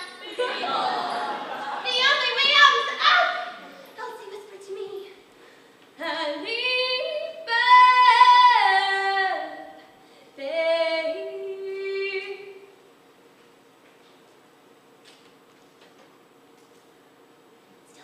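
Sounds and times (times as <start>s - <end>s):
woman singing wordless phrases: 6.0s - 9.8s, 10.4s - 12.7s.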